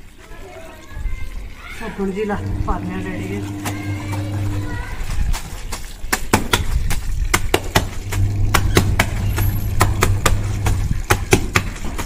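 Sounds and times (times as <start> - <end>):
low hum: 2.4 - 5.0, 8.0 - 11.2
wet cloth slapping on concrete: 5.0 - 9.2, 9.8 - 12.0.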